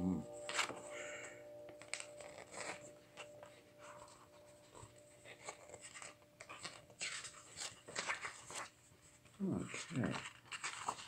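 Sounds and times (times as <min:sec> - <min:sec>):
faint clock chime: 0:00.0 - 0:07.8
book pages turning: 0:00.3 - 0:11.0.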